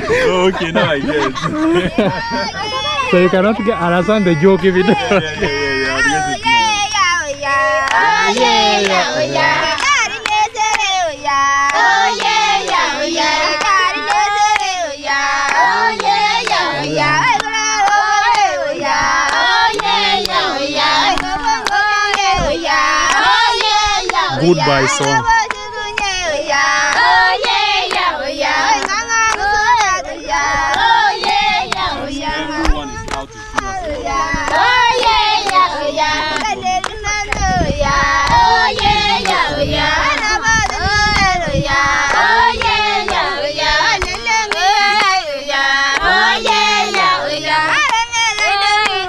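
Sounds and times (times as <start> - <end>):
women singing together: 0.0 - 49.0
hand claps: 7.8 - 11.0, 11.6 - 14.8, 15.4 - 18.5, 19.2 - 22.4, 23.0 - 24.2, 24.9 - 26.2, 26.9 - 28.1, 28.7 - 29.8, 30.7 - 32.0, 32.6 - 33.8, 34.4 - 37.5, 38.2 - 41.3, 42.0 - 45.2, 45.9 - 49.0.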